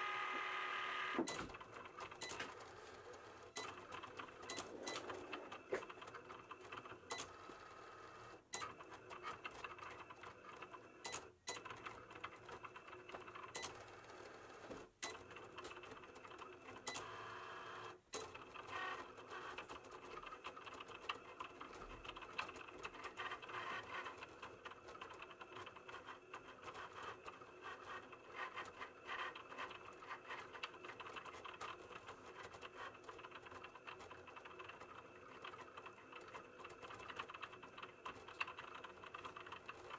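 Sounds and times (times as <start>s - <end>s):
cutting machine motors whirring: 0.0s - 15.6s, 16.2s - 19.6s.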